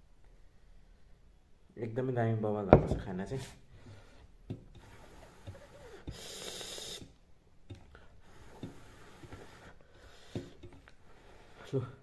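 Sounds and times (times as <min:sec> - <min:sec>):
hiss of breath through mouth: 0:04.8 - 0:07.1.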